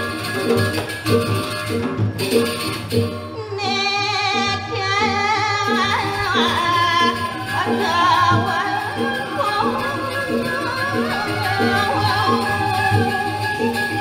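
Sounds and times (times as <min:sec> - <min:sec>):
gamelan accompaniment: 0:00.0 - 0:14.0
woman singing ornamented line: 0:03.4 - 0:14.0.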